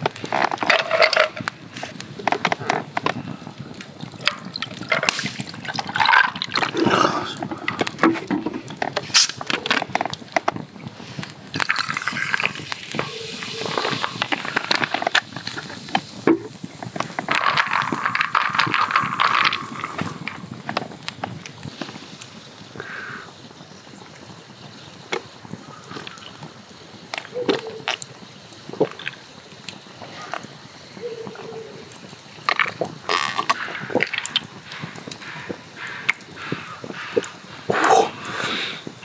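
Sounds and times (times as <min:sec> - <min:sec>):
liquid poured over ice: 0:04.2 - 0:09.3, 0:11.5 - 0:15.6, 0:17.0 - 0:20.5.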